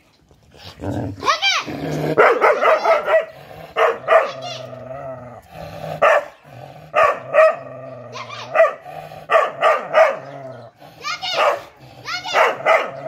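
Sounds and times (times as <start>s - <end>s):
dog barking: 2.2s - 4.6s, 6.0s - 10.4s, 11.2s - 13.0s.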